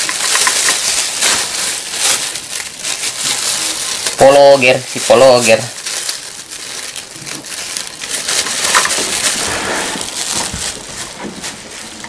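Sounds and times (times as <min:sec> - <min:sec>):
plastic bags rustling: 0:00.0 - 0:12.0.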